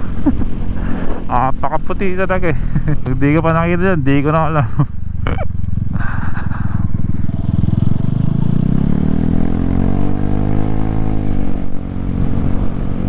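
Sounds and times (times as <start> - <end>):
scooter engine accelerating: 4.6 - 13.0.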